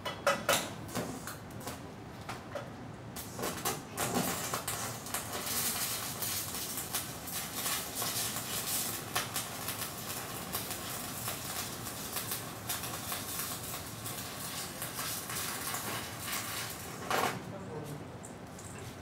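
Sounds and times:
welding arc crackling and popping: 0:03.2 - 0:17.4.

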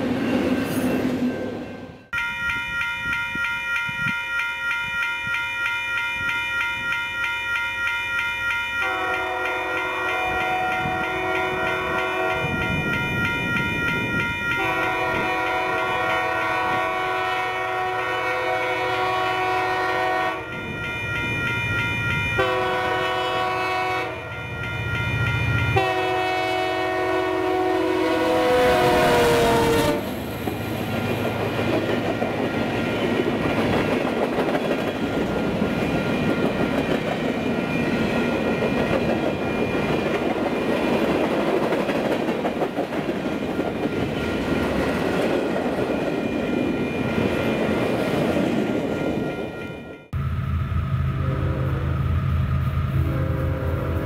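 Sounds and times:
locomotive horn chord: 0:08.8 - 0:12.7, 0:14.5 - 0:20.6, 0:22.4 - 0:24.4, 0:25.8 - 0:30.1, 0:51.0 - 0:52.0, 0:52.9 - 0:54.0.

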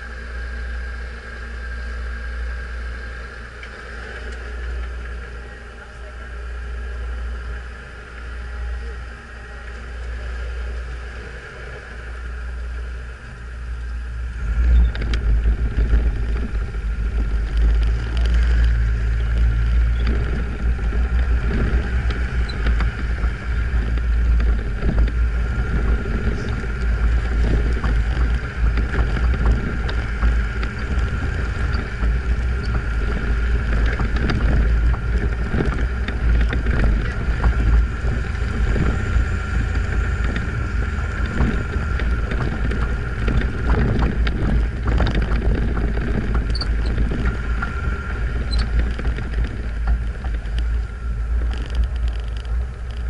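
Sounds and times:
off-road vehicle engine rumble: 0:00.0 - 0:53.0
wind buffeting microphone: 0:12.0 - 0:53.0.

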